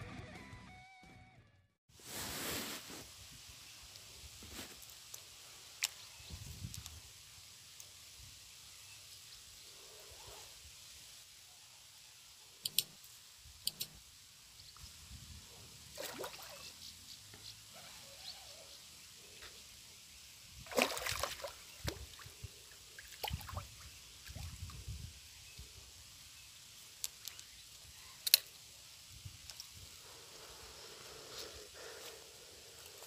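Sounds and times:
sharp click: 13.6s - 14.0s
water splashing and sloshing: 15.9s - 16.8s, 20.6s - 24.8s.

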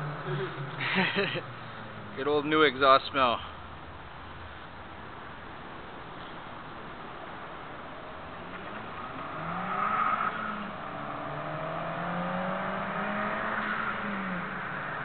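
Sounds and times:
turbocharged car engine accelerating: 8.4s - 15.0s.

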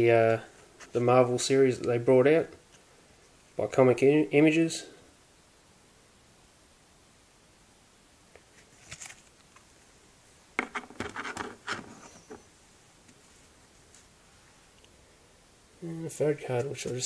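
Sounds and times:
handling noise: 10.6s - 12.5s.

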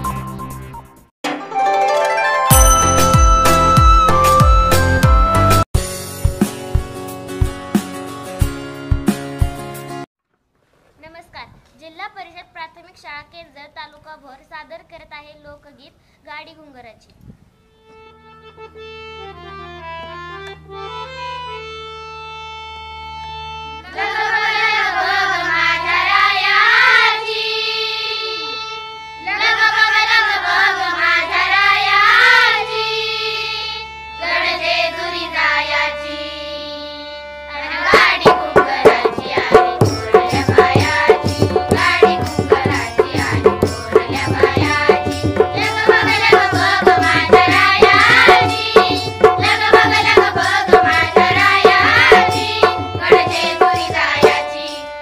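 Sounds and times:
harmonium chord: 1.3s - 10.1s, 17.6s - 55.0s
children singing: 23.8s - 54.9s
barrel drum beat: 38.0s - 54.4s
tabla: 38.2s - 54.7s.

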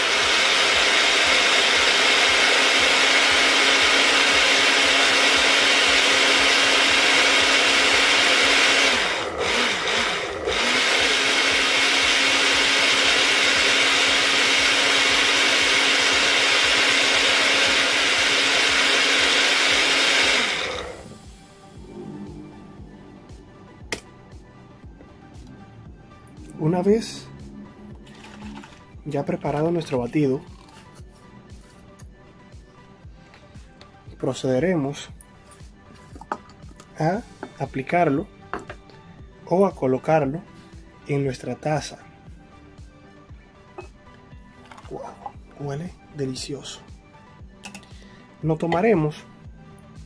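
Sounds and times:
blender motor running: 0.0s - 23.0s, 27.9s - 29.8s.

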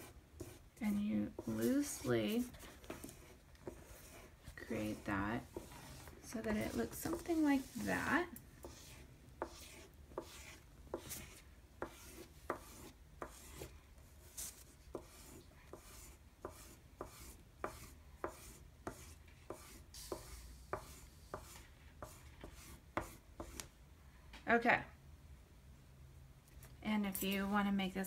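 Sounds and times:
oil pastel scratching on paper: 0.0s - 23.6s.

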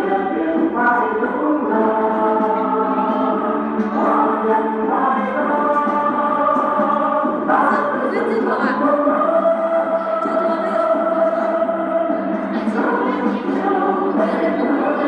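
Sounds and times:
song with singing and instruments: 0.0s - 15.0s.

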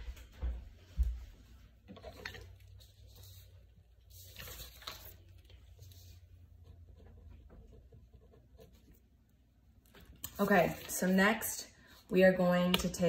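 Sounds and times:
faint rustles and shuffles: 0.0s - 8.1s.

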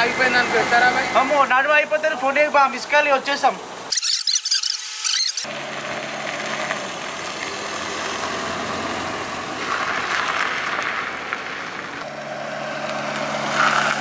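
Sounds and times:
road noise: 0.0s - 14.0s
small car engine running: 3.9s - 10.9s, 12.0s - 14.0s.

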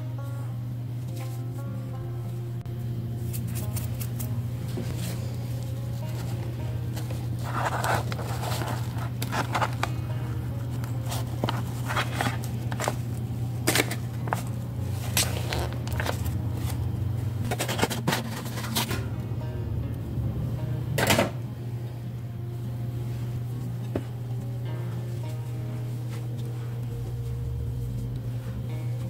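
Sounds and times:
low hum: 0.0s - 29.0s
paper crinkling: 3.2s - 19.1s.

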